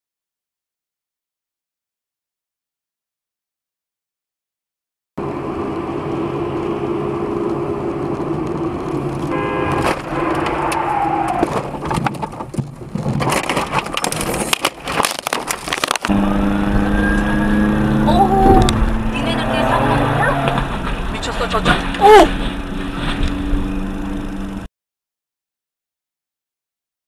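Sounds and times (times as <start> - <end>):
car engine and road noise: 5.2 - 24.7
collision knocks and crunches: 11.4 - 16.1.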